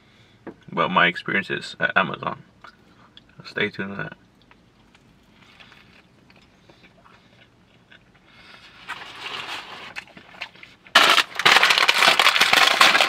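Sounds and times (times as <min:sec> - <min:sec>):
quiet chewing: 0:04.2 - 0:09.0
plastic snack bag crinkling: 0:08.7 - 0:13.0.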